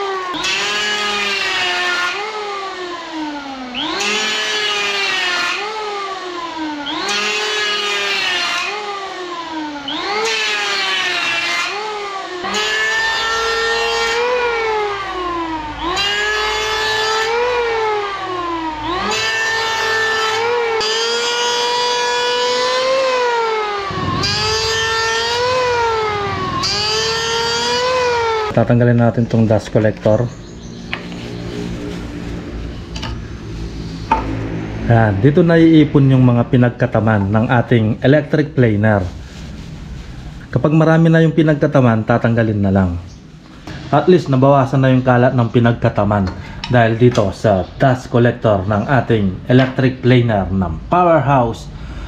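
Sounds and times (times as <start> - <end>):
electric hand planer planing wood: 0.0 - 28.6.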